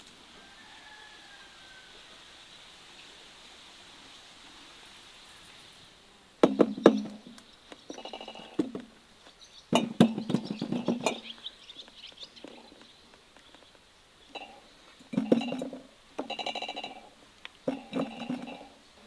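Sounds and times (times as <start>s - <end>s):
birds chirping: 4.9s - 19.0s
plums clattering in metal bowl: 6.4s - 8.9s, 9.7s - 11.4s, 14.3s - 18.8s.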